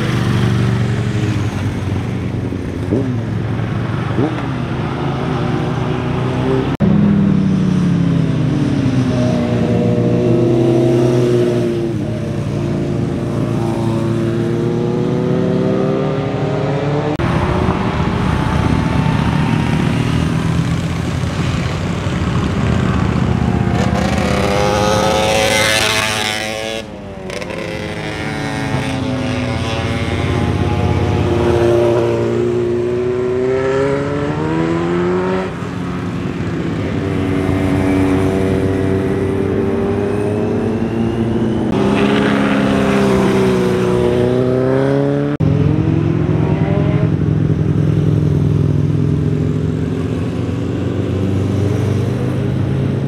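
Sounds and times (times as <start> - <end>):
motorcycles cornering and accelerating: 0.0 - 53.0
motorcycle revving harshly: 18.1 - 53.0.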